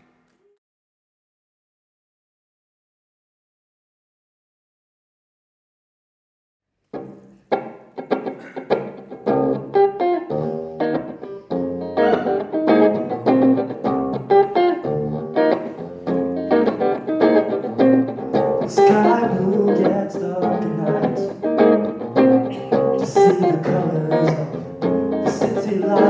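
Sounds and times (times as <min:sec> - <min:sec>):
electric guitar through amplifier: 0:06.9 - 0:26.0.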